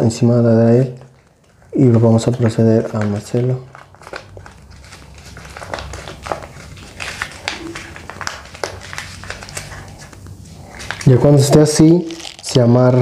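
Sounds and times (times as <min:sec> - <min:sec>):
paper rustling and crinkling: 0:00.6 - 0:13.0.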